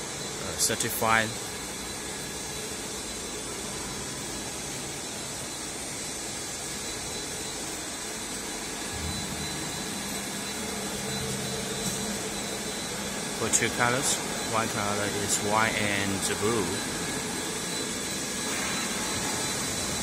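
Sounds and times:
machine whir with high tone: 0:00.0 - 0:20.0.

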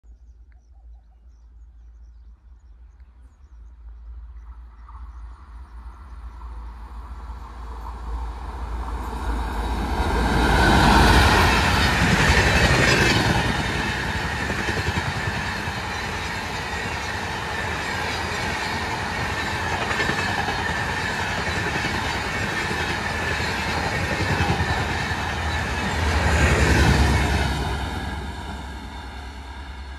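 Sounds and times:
train passing at speed: 0:04.0 - 0:29.9.

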